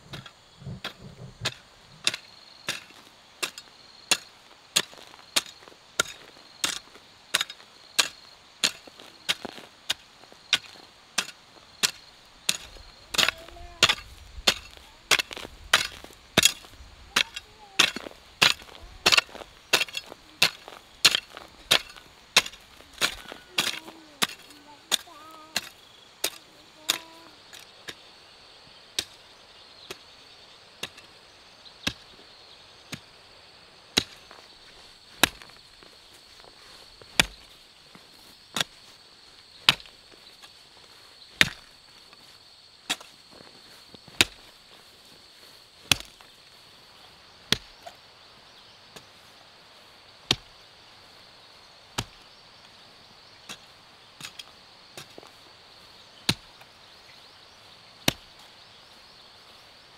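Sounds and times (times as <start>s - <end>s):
hoe chopping into soil: 0.1s - 28.0s, 30.8s - 31.1s, 31.8s - 32.2s, 33.9s - 34.4s, 35.1s - 35.8s, 37.0s - 37.6s, 38.5s - 38.8s, 39.6s - 40.6s, 41.3s - 41.8s, 42.8s - 44.6s, 45.8s - 46.3s, 47.4s - 48.0s, 50.2s - 50.6s, 51.9s - 52.2s, 53.4s - 55.4s, 56.2s - 56.7s, 58.0s - 58.5s.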